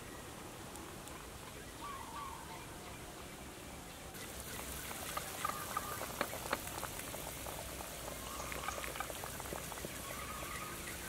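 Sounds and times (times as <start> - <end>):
steady hiss: 4.1 - 11.0
soup bubbling with small pops: 4.5 - 11.0.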